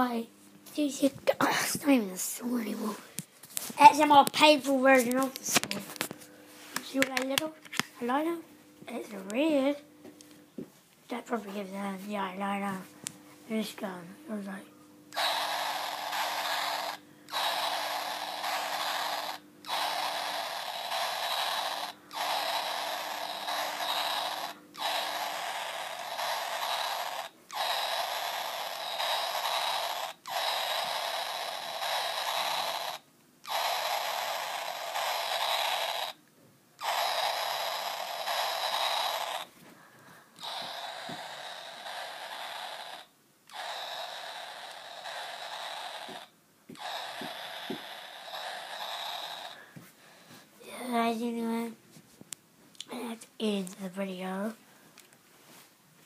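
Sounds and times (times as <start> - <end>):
toy gun electronic buzz: 15.1 - 36.2, 36.8 - 39.5, 40.4 - 49.7.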